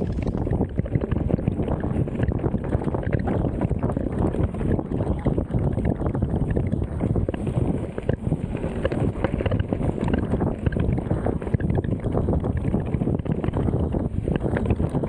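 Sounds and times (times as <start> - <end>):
wind buffeting microphone: 0.0 - 15.0
bike rattling over rough trail: 6.1 - 15.0.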